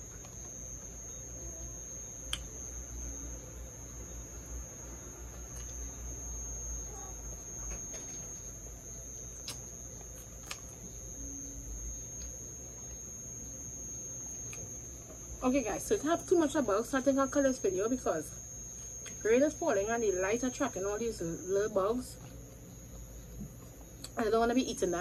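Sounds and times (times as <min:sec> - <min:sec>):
high-pitched whine: 0:00.0 - 0:25.0
mouth clicks: 0:09.4 - 0:09.7
quiet chewing: 0:09.4 - 0:10.9, 0:22.2 - 0:22.6.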